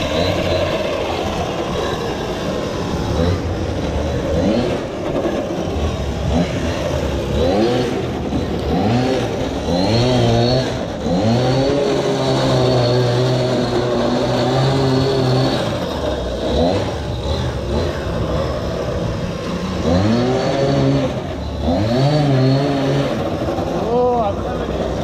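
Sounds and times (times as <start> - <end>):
small engine revving: 0.0 - 25.0.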